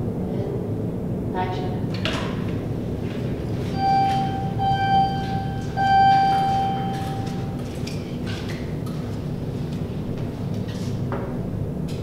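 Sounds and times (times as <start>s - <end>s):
elevator arrival chime: 3.6s - 7.9s.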